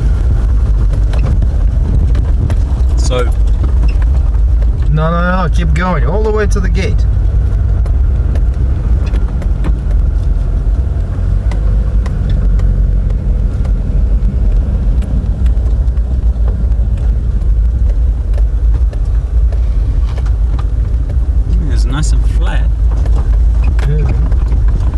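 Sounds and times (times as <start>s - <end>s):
tyres on gravel: 0.0s - 24.9s
vehicle engine rumble: 0.0s - 24.9s
small knocks and rattles: 0.4s - 5.0s, 7.3s - 21.6s, 22.7s - 24.9s.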